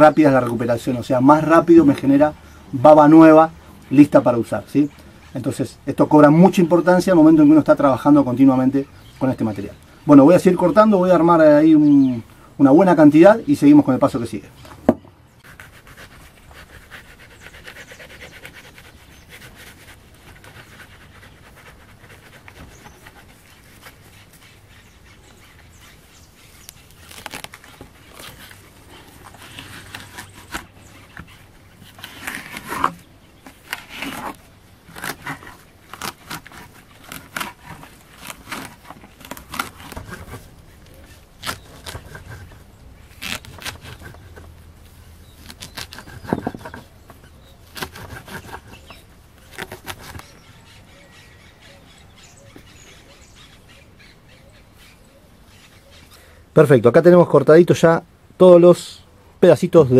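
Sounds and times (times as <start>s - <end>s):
knife cutting on wood: 14.7s - 44.5s, 45.3s - 50.3s.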